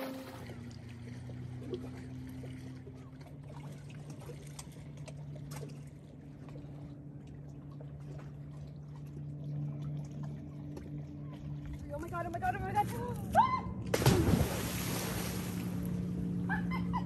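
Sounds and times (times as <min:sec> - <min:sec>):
steady low hum: 0:00.0 - 0:17.0
waves lapping on rocky shore: 0:14.0 - 0:16.0.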